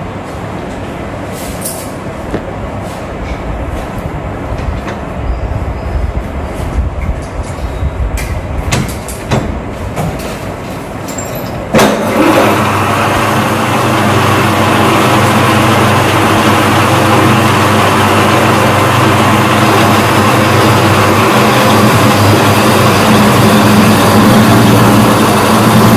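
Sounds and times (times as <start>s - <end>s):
lathe motor humming: 12.0s - 25.9s.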